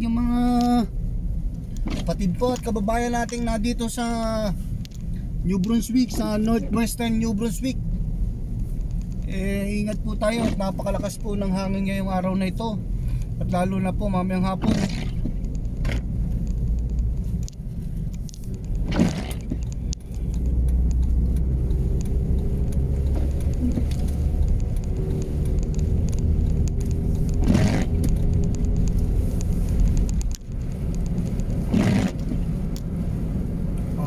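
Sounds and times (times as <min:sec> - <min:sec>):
engine and road rumble: 0:00.0 - 0:34.0
windshield wiper sweeping: 0:10.2 - 0:11.2, 0:14.5 - 0:19.6, 0:20.4 - 0:34.0.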